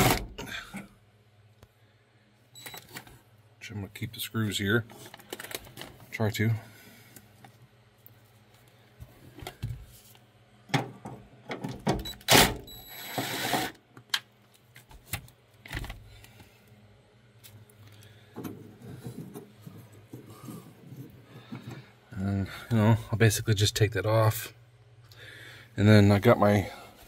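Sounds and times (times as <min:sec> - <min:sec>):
power tool motor whine: 0:12.3 - 0:13.8.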